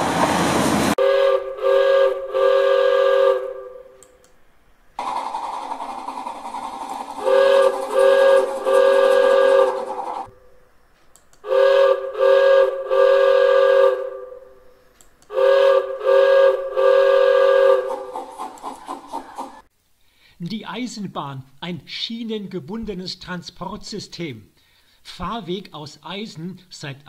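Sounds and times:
steam locomotive whistle: 0.1s - 4.0s, 7.2s - 10.4s, 11.4s - 14.6s, 15.3s - 19.7s.

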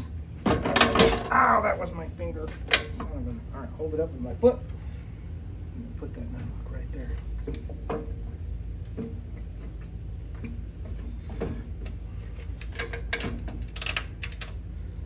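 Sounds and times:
low steady hum: 0.0s - 15.0s
metal nut and bolt clicks: 12.4s - 14.6s.

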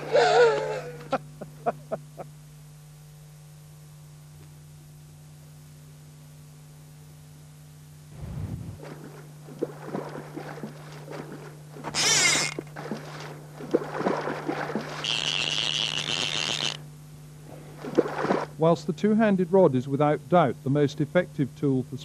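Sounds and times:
high hiss with a whine: 0.0s - 9.5s, 15.0s - 17.7s
steady low hum: 0.0s - 22.0s
fish splashing in water: 8.8s - 16.8s, 17.6s - 18.6s.

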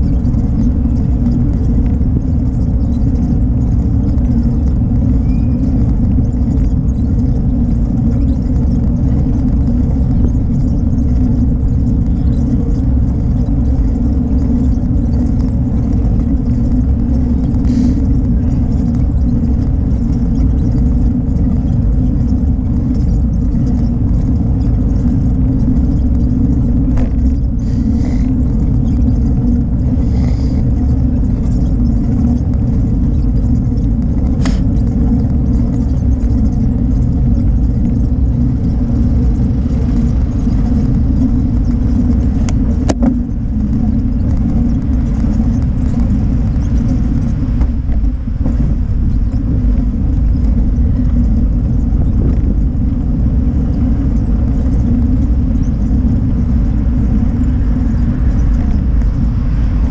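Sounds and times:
road vibration rumble: 0.0s - 59.9s
wind buffeting camera: 0.0s - 59.9s.

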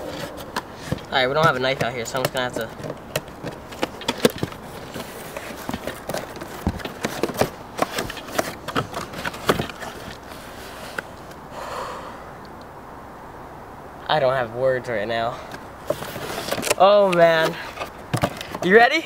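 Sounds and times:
rustling scrape: 0.0s - 11.2s, 15.8s - 18.6s.

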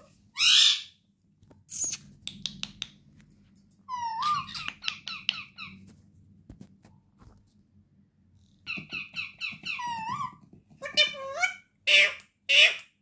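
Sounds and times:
parakeets calling: 0.4s - 1.0s, 8.6s - 13.0s.

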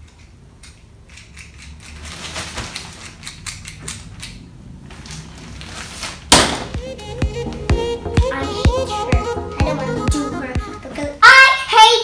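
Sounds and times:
plastic toy mechanism clicking: 0.0s - 2.0s, 3.0s - 4.4s
sharp loud knock: 6.3s - 6.8s.

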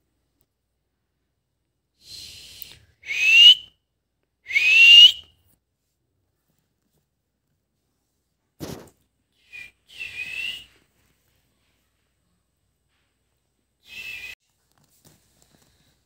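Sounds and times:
faint hiss: 2.0s - 3.0s
rising whistles: 2.1s - 3.7s, 4.5s - 5.3s, 9.4s - 10.8s, 13.8s - 14.4s.

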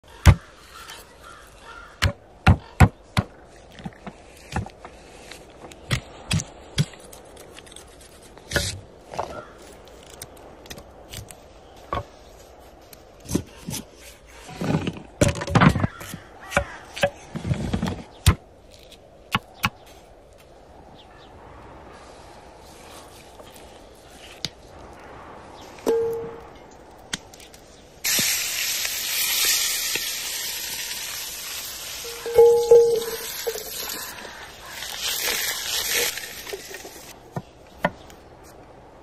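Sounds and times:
scraping and handling food: 32.1s - 37.2s.

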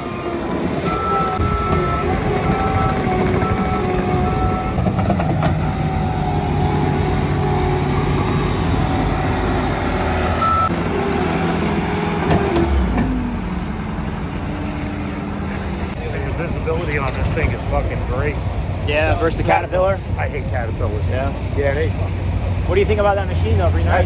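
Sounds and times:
diesel engine revving: 0.0s - 18.8s
backup alarm beeps: 0.1s - 4.8s, 10.4s - 10.7s.

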